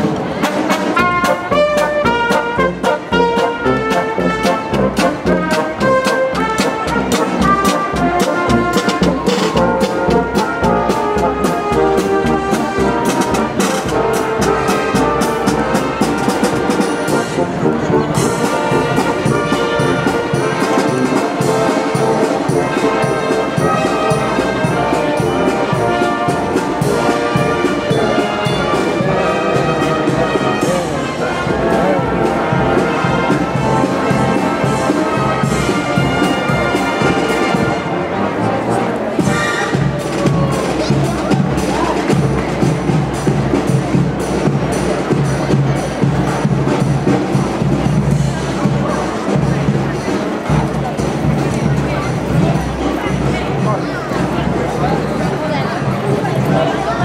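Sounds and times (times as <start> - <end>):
steady drum beat: 0.0 - 37.9, 39.2 - 57.0
brass band playing march: 0.0 - 57.0.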